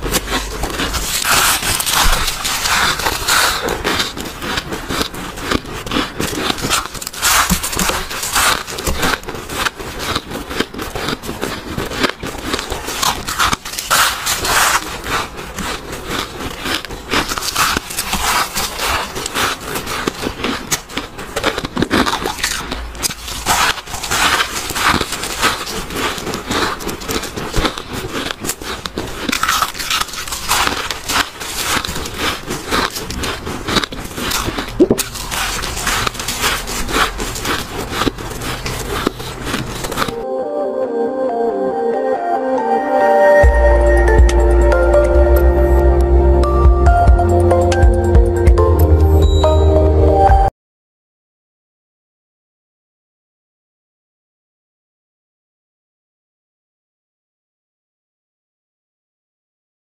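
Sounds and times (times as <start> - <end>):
ice being chewed: 0.0 - 40.2.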